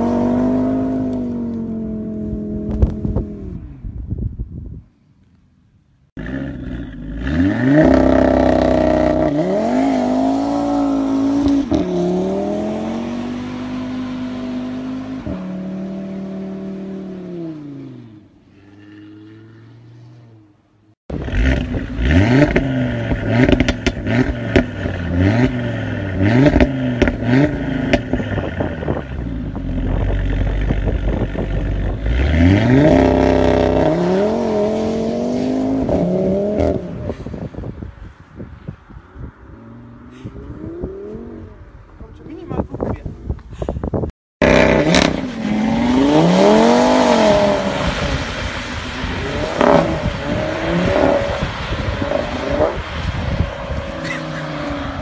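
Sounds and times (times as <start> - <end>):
car engine revving: 6.2 - 37.0, 44.4 - 55.0.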